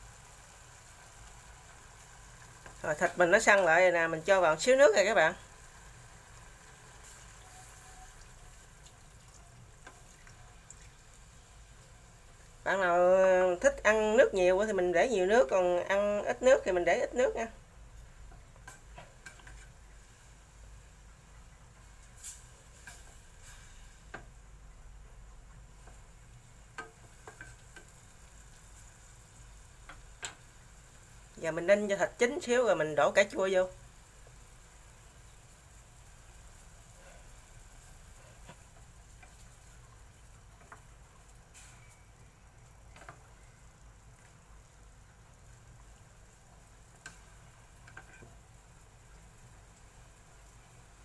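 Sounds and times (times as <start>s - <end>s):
faint sizzle of simmering meat: 0.0s - 51.0s
water pouring into a pot: 7.0s - 12.7s.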